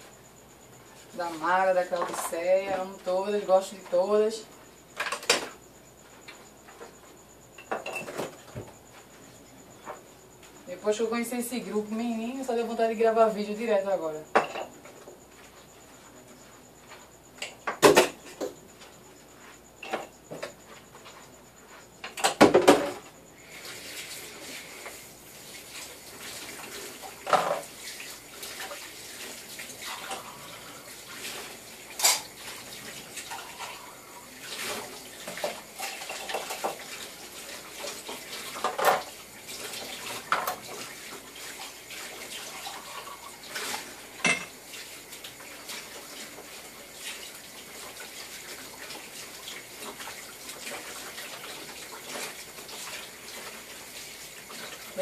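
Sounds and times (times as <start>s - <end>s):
dishes and cutlery clinking: 32.0s - 32.3s, 44.2s - 44.5s.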